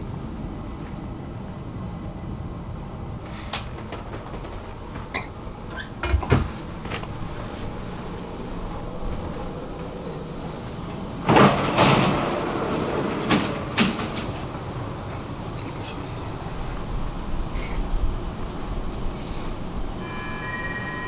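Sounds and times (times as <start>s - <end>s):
train low rumble: 0.0s - 21.0s
sliding train doors thudding: 3.2s - 16.9s
steady high-pitched tone: 12.5s - 21.0s.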